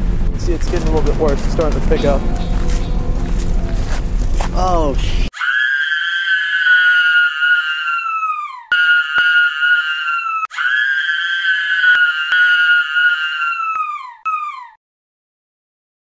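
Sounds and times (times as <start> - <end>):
high-pitched screaming: 5.3 - 14.8.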